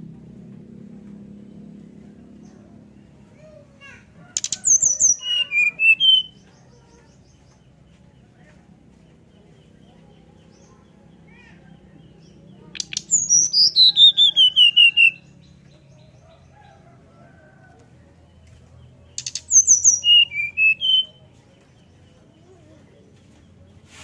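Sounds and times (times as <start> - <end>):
bird song with whistled notes: 4.4 - 7.6, 12.2 - 16.8, 19.1 - 22.2.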